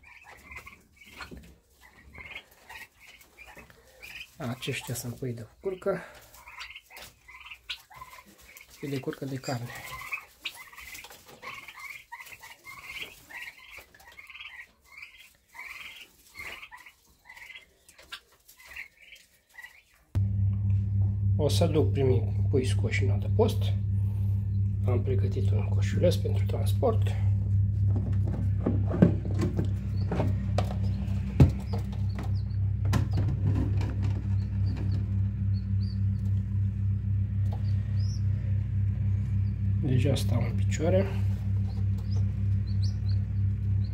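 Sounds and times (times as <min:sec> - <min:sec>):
young turkeys peeping: 0:00.0 - 0:20.2, 0:21.4 - 0:43.9
incubator humming: 0:20.1 - 0:43.9.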